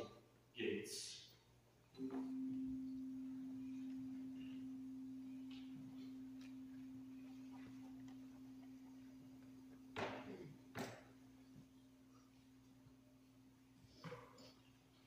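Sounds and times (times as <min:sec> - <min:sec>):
chime ringing: 0:02.0 - 0:10.7.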